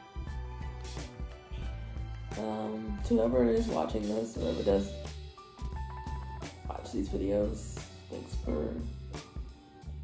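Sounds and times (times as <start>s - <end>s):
background music with bass: 0.0s - 10.0s.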